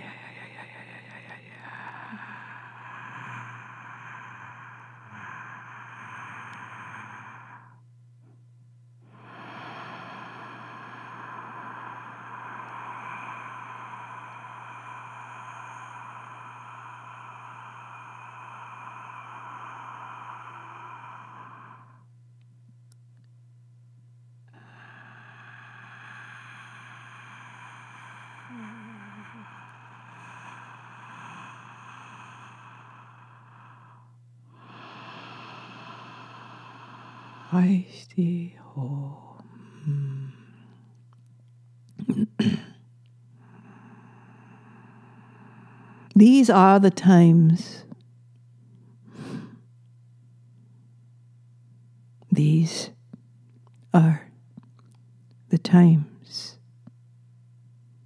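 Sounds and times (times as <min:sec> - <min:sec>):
long breathy sustained sounds: 0:00.0 - 0:07.9, 0:09.0 - 0:22.2, 0:24.5 - 0:41.0, 0:43.4 - 0:48.0, 0:49.0 - 0:49.6
steady low hum: 0:00.0 - 0:58.0.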